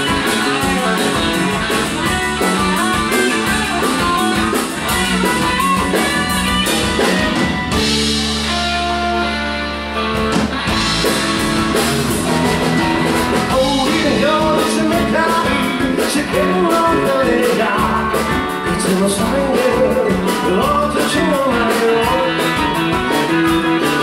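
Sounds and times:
drum kit: 0:00.0 - 0:24.0
live rock band playing: 0:00.0 - 0:24.0
person singing: 0:13.5 - 0:24.0.

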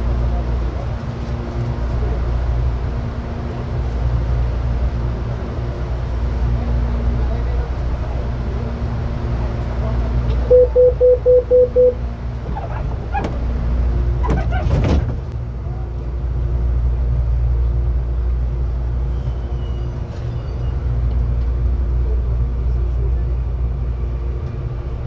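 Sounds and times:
train equipment hum: 0:00.0 - 0:25.0.

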